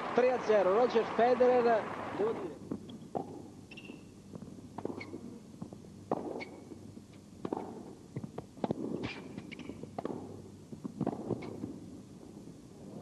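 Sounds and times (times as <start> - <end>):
rackets striking tennis ball: 2.7 - 11.8.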